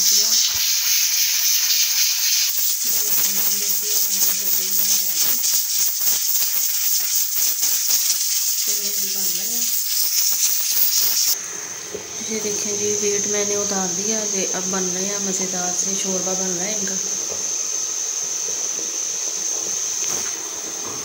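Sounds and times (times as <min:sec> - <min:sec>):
pressure cooker hissing steam: 0:00.0 - 0:21.0
pressure cooker weight rattling: 0:00.8 - 0:11.4.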